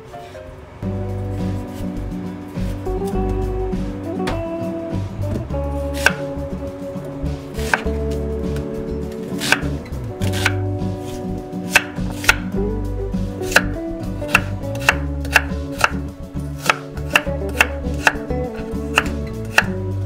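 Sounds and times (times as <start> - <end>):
background music: 0.0 - 20.0
knife chopping on wooden board: 6.0 - 6.3, 7.6 - 12.6, 13.4 - 19.8.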